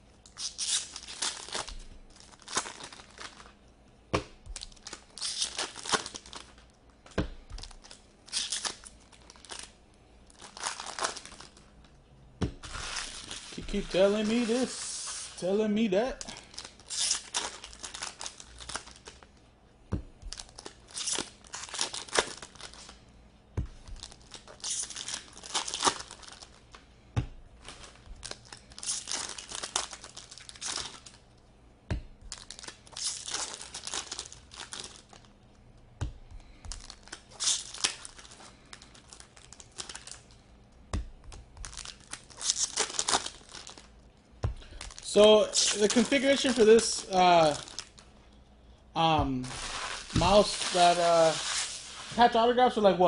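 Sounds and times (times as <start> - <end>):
foil card packs tearing and crinkling: 0.3 - 3.6, 4.5 - 6.6, 7.5 - 9.7, 10.3 - 11.7, 12.6 - 19.3, 20.3 - 23.0, 23.8 - 26.7, 27.6 - 31.2, 32.3 - 35.3, 36.4 - 40.3, 41.6 - 43.9, 44.6 - 48.0, 49.4 - 52.4.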